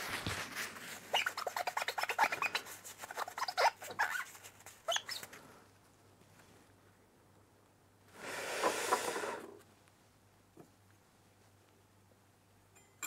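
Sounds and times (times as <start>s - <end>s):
cloth squeaking on glass: 1.0s - 5.3s.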